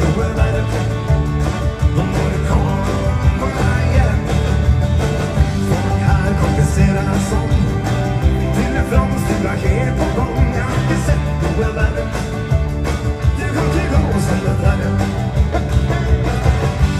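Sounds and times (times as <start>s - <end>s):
live country-rock band: 0.0s - 16.9s.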